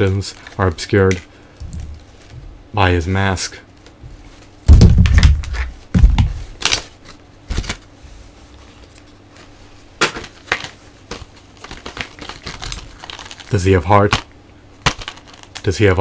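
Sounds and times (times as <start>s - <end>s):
plastic packaging crinkling: 0.2s - 2.4s, 4.8s - 7.8s, 10.2s - 15.9s.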